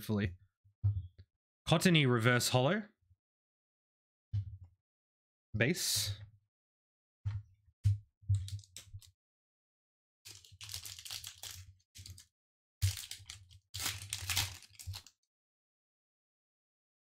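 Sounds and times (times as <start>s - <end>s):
foil pack tearing and crinkling: 10.3s - 12.2s, 12.8s - 15.1s
taps on foil pack: 12.8s - 15.1s.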